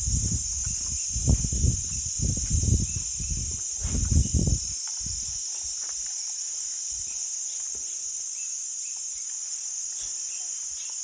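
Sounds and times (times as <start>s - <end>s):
footsteps on leafy dirt path: 0.0s - 8.0s
forest insects buzzing: 0.0s - 11.0s.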